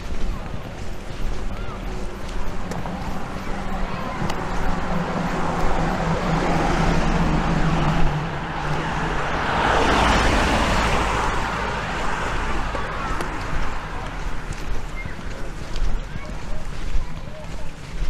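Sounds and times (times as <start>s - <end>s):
car driving past: 3.9s - 14.3s.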